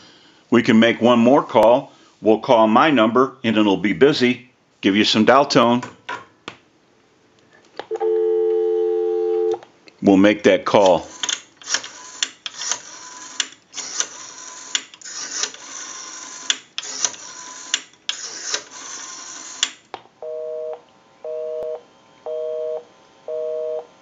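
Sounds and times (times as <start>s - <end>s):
rotary dial whirring and clicking: 10.8s - 19.9s
busy signal two-tone beep: 20.2s - 23.9s.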